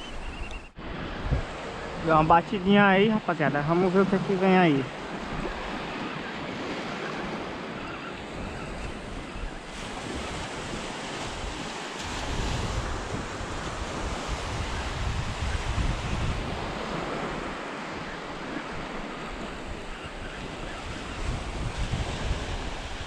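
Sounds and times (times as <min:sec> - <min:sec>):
wind buffeting microphone: 0:00.0 - 0:23.0
small waves breaking on beach: 0:00.7 - 0:23.0.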